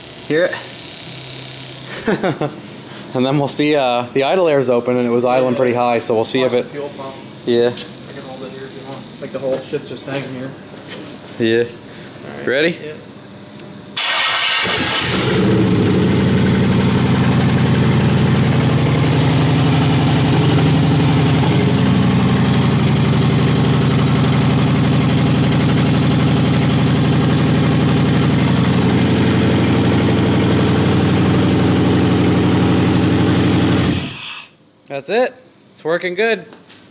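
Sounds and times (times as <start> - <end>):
car engine starting and idling: 14.0 - 34.2.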